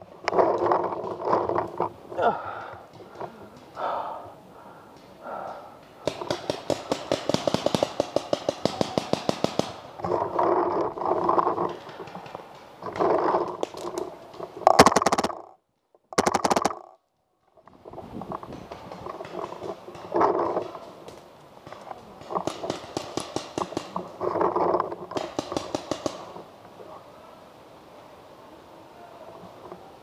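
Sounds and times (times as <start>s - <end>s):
paintball marker firing: 6.0s - 9.8s, 22.4s - 24.0s.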